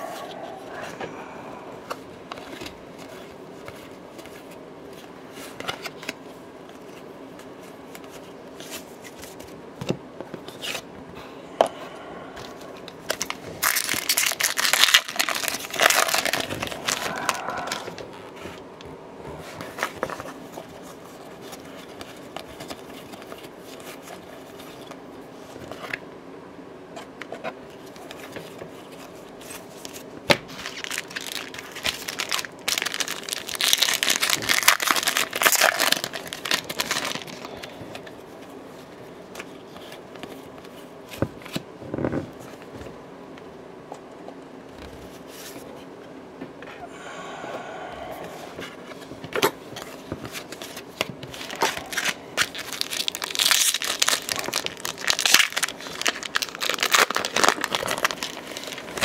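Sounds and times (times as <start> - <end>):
faint steady hum: 0.0 - 59.0
cards being handled and flipped: 1.8 - 10.9, 19.4 - 26.0, 27.0 - 42.9, 48.5 - 59.0
foil wrapper crinkling and tearing: 13.0 - 18.0, 29.9 - 37.8, 50.4 - 59.0.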